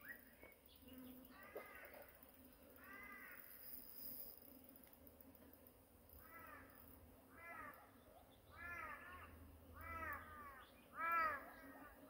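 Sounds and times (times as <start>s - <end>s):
bird calling: 6.2s - 12.0s.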